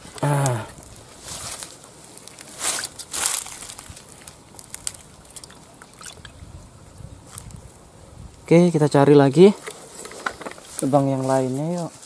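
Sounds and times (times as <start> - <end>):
rustling scrapes: 1.1 - 4.1, 9.5 - 12.0.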